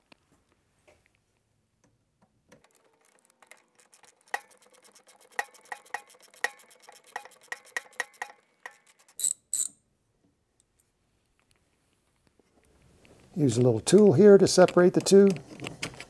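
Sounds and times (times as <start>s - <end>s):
sharp metal clacks: 2.6s - 9.7s.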